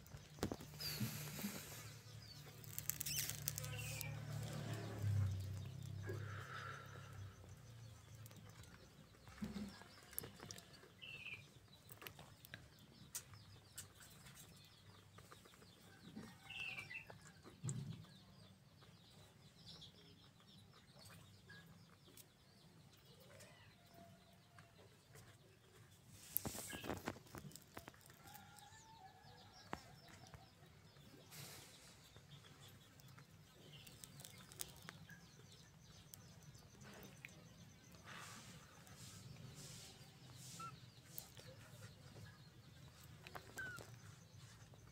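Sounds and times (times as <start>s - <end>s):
small clicks: 2.5s - 4.1s
rustle: 26.1s - 28.6s
soft animal calls: 42.9s - 44.3s.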